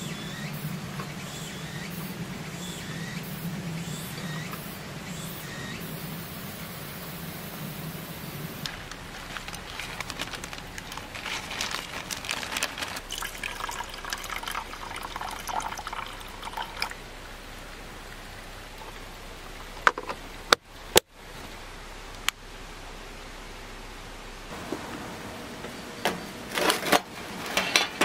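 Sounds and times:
water pouring: 0:08.6 - 0:20.5.

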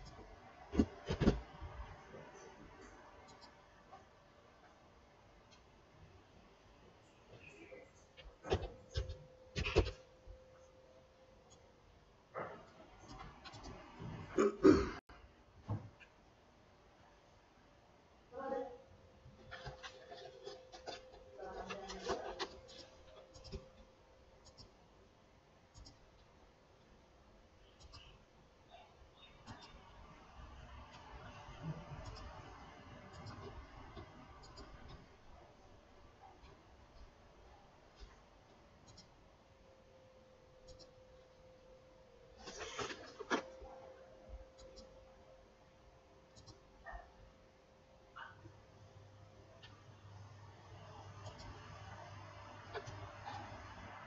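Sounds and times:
faint steady hum: 0:00.0 - 0:54.0
mouse and keyboard clicks: 0:19.5 - 0:23.8, 0:24.4 - 0:24.8, 0:25.7 - 0:26.0, 0:27.8 - 0:28.1, 0:33.1 - 0:35.0, 0:46.3 - 0:46.6.

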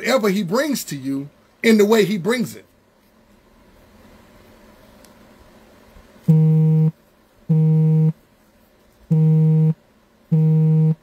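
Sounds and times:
low electronic buzz: 0:06.2 - 0:08.2, 0:09.1 - 0:11.0.

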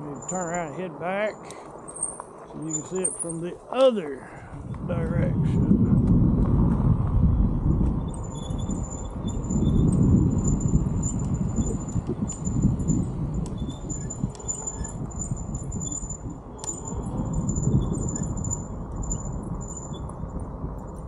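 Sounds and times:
wind rumble on microphone: 0:00.0 - 0:21.0
small clicks and rattles: 0:07.8 - 0:21.0.

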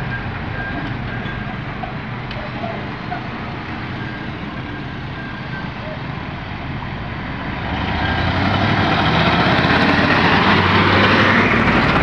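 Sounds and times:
diesel truck driving by: 0:00.0 - 0:12.0
pickup truck passing: 0:06.7 - 0:12.0.

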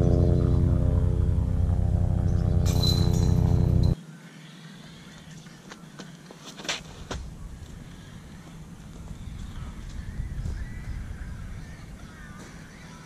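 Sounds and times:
motor drone: 0:00.0 - 0:04.0.

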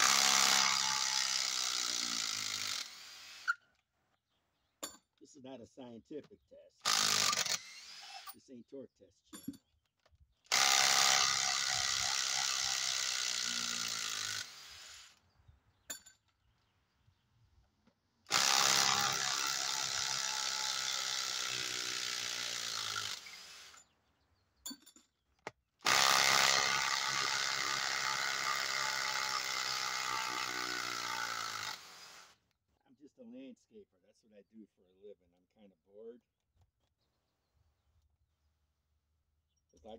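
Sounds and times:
impact driver driving screws into log: 0:00.0 - 0:03.6, 0:06.8 - 0:08.4, 0:10.5 - 0:15.2, 0:18.3 - 0:23.8, 0:25.4 - 0:32.4.

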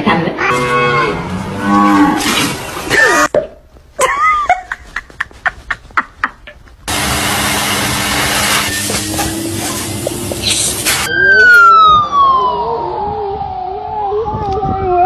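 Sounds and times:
vacuum cleaner humming: 0:06.9 - 0:11.1.

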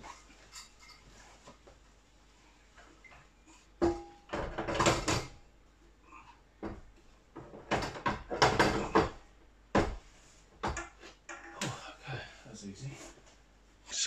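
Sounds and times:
boiler parts knocking and clattering: 0:03.8 - 0:05.4, 0:06.6 - 0:11.8.

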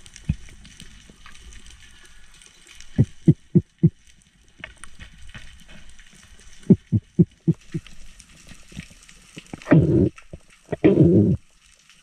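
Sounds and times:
faint underwater crackling: 0:00.0 - 0:12.0
low thumps: 0:06.7 - 0:07.8.

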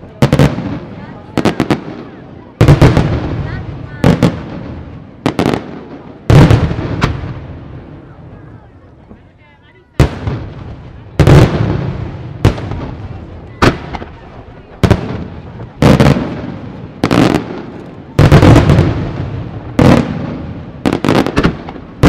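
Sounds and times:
firework shells bursting: 0:14.8 - 0:22.0.

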